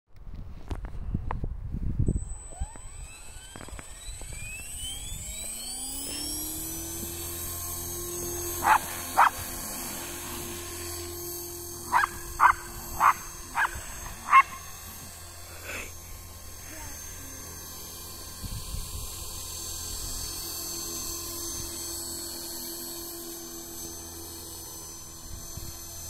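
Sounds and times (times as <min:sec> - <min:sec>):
model helicopter whine: 0:00.6 - 0:26.0
dog barking: 0:08.6 - 0:09.4, 0:11.9 - 0:14.6.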